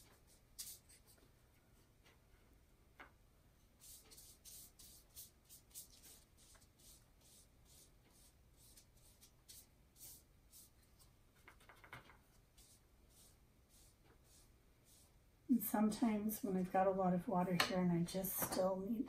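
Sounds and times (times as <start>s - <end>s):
paintbrush swishing on paper: 0.0s - 1.2s, 3.8s - 15.2s
brush scraping and tapping palette: 0.0s - 2.2s, 3.8s - 15.2s.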